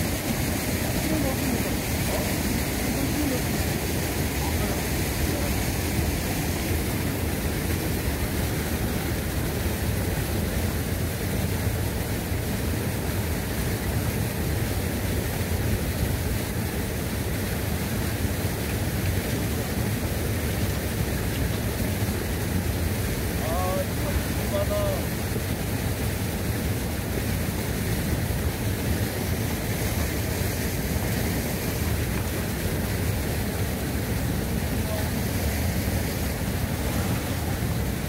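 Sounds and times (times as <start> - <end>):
small waves washing in: 0.0 - 38.0.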